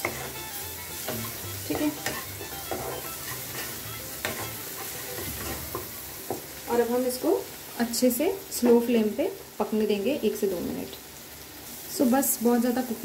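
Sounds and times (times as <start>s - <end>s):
spoon scraping a pan: 0.0s - 6.6s
frying hiss: 0.0s - 13.0s.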